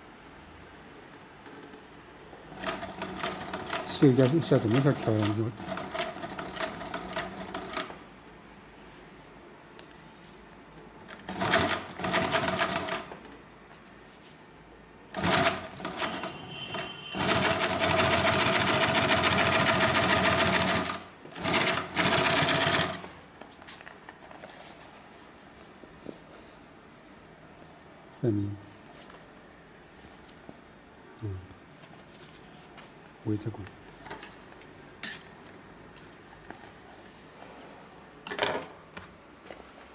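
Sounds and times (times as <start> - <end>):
sewing machine stitching: 2.5 - 8.0, 11.2 - 13.1, 15.1 - 23.1.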